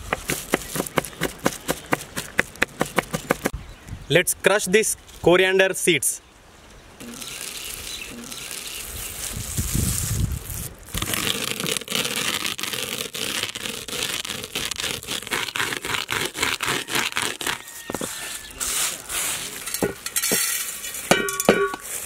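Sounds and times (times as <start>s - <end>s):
rolling pin crushing seeds: 0.0s - 3.5s, 10.9s - 20.8s
seeds scraped off board: 7.0s - 21.1s
seeds clinking into steel bowl: 18.9s - 22.0s.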